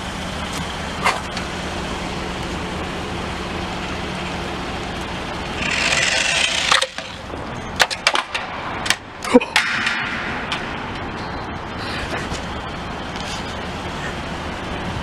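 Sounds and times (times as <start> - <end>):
traffic noise: 0.0 - 15.0
toy car electric motor whir: 5.6 - 7.2.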